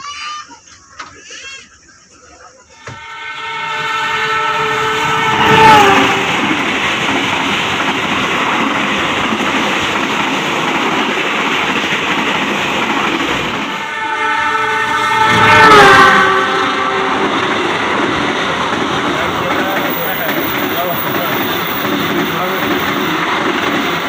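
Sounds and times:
train carriages rushing past: 0:02.6 - 0:24.0
train horn: 0:02.8 - 0:07.3, 0:13.6 - 0:22.9.

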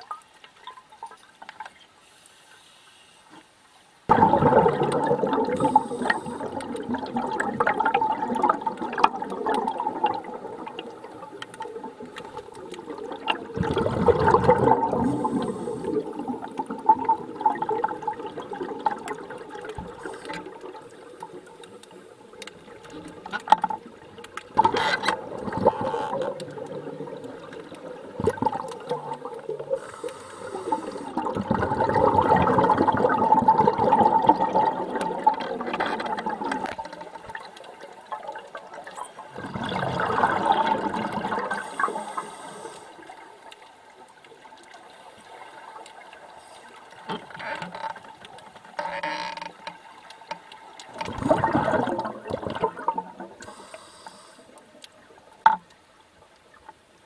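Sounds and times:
underwater air bubbling: 0:04.1 - 0:48.8, 0:49.8 - 0:55.5.

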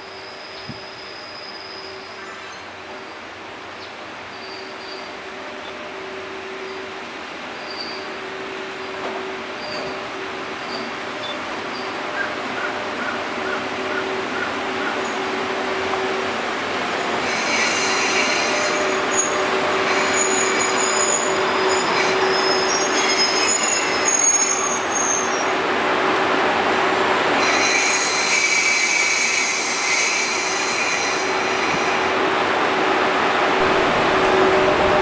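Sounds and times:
brake and wheel squeals: 0:00.0 - 0:03.2, 0:04.3 - 0:05.8, 0:07.6 - 0:08.3, 0:09.5 - 0:13.6, 0:17.2 - 0:25.6, 0:27.4 - 0:32.1
train rolling and braking: 0:00.0 - 0:35.0.

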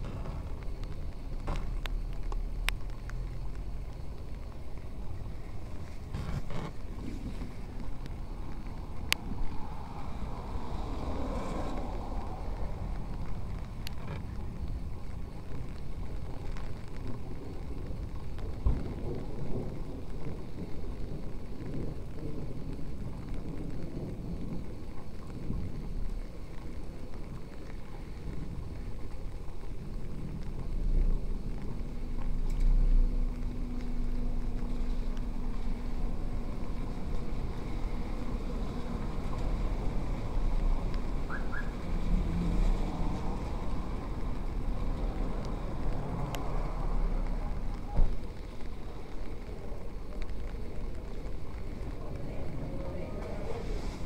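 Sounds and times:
traffic rumble: 0:00.0 - 0:54.0
passing vehicle engine hum: 0:05.2 - 0:14.6, 0:30.5 - 0:54.0.

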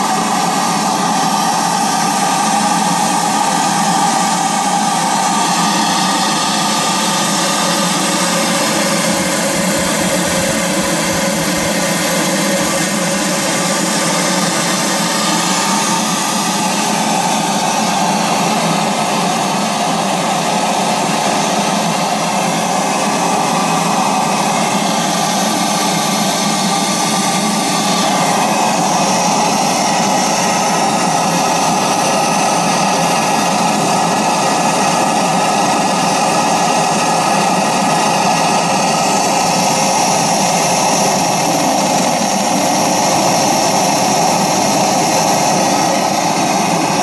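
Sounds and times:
steam engine hissing: 0:00.0 - 0:47.0.

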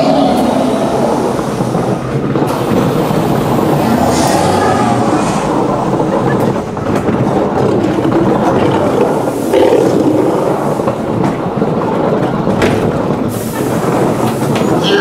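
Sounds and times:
ride car rumbling on track: 0:00.0 - 0:15.0
roaring monster sound effect: 0:03.5 - 0:06.3, 0:09.5 - 0:10.6.

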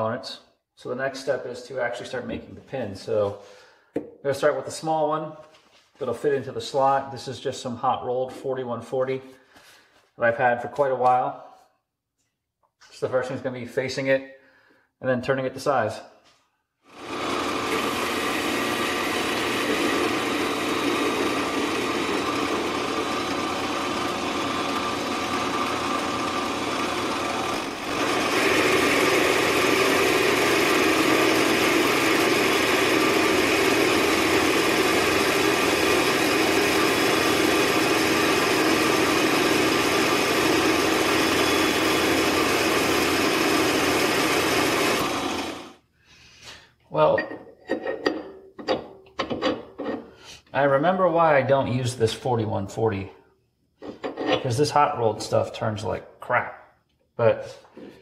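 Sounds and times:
metal lathe whining: 0:16.9 - 0:45.8.

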